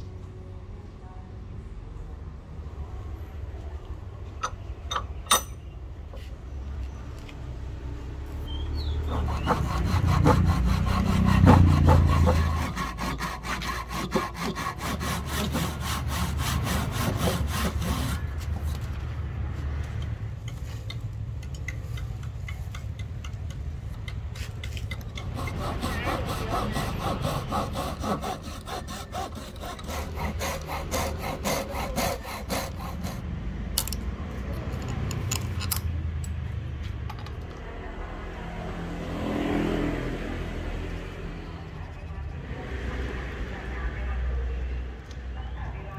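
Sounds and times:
cutting tool rasping on wood: 0:08.9 - 0:18.6, 0:23.5 - 0:33.2.

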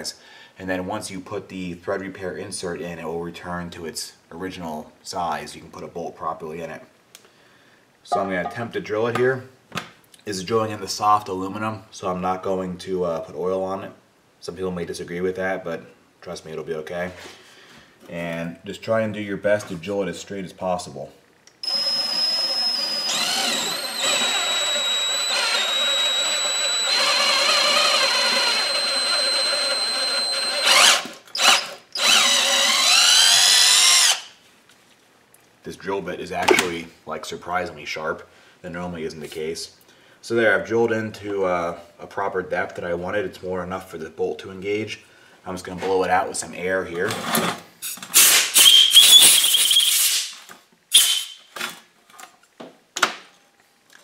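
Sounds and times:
electric drill whining: 0:21.6 - 0:34.3
short air puffs: 0:47.8 - 0:51.4.

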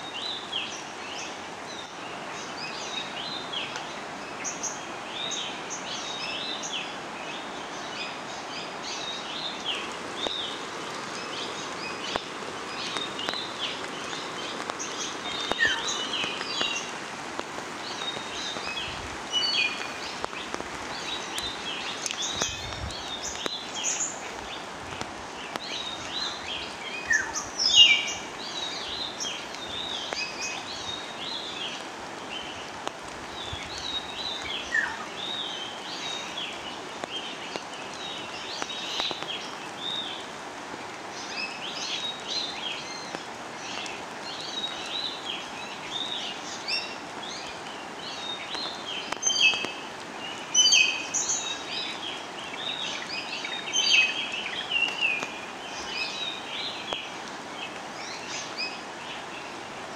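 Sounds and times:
steady background hiss: 0:00.0 - 0:59.9
birds chirping: 0:00.2 - 0:40.4.

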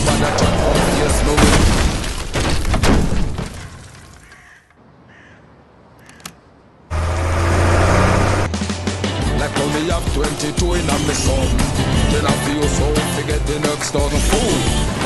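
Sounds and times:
truck crashing through barrier: 0:00.0 - 0:04.1
faint crow caws: 0:03.6 - 0:06.5
click: 0:06.0 - 0:06.4
loud music with heavy bass: 0:08.5 - 0:14.9.

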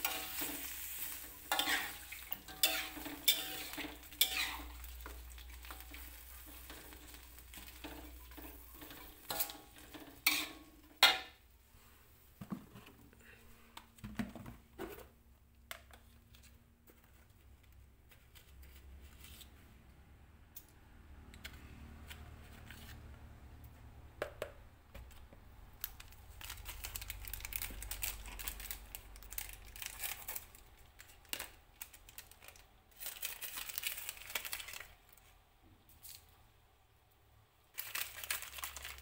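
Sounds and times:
plastic packet crinkling and tearing: 0:25.8 - 0:35.3, 0:37.7 - 0:39.0.

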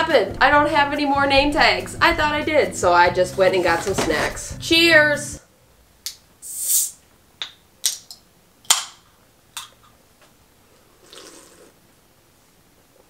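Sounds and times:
faint sipping: 0:10.7 - 0:11.8.

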